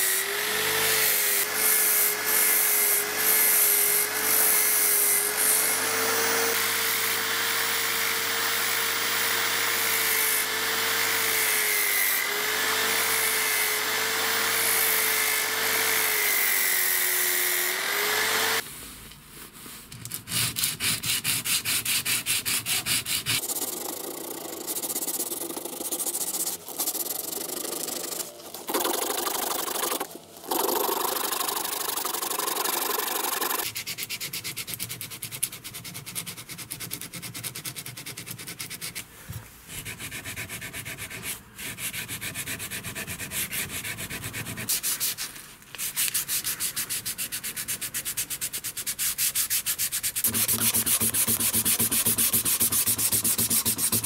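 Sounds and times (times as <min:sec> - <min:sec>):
sandpaper rubbing on wood: 0:20.3 - 0:39.0, 0:39.7 - 0:54.0.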